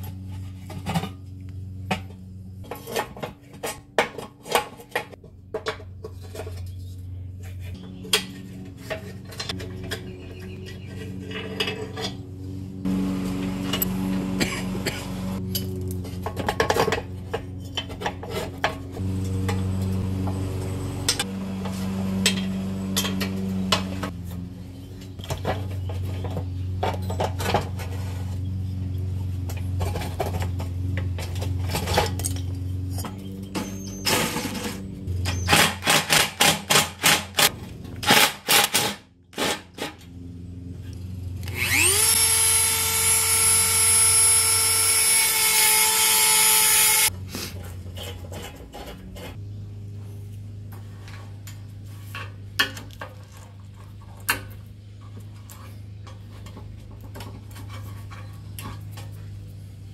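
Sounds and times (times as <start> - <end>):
electric power tool whining: 12.7 - 15.8, 41.4 - 47.1.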